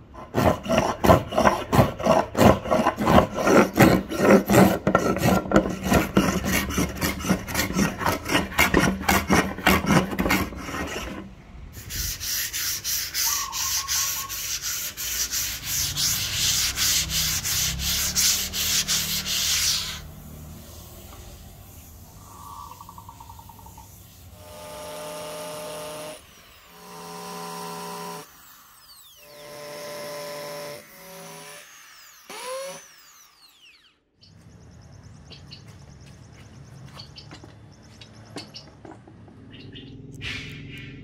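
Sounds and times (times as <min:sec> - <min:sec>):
wood sanding by hand: 0:00.1 - 0:22.2.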